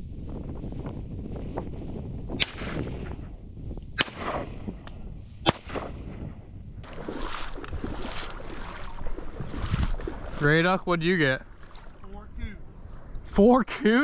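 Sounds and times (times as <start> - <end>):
wind noise on microphone: 0.0 - 13.6
shotgun shots with echo: 2.4 - 3.1, 4.0 - 4.7, 5.4 - 6.2.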